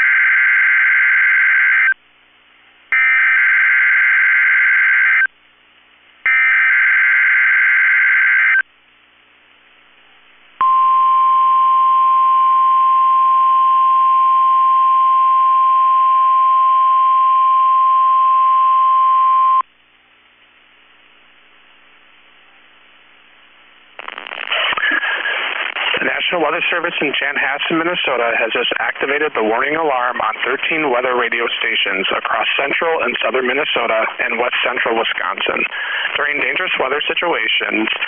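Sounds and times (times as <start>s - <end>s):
faint static: 8.4s - 38.0s.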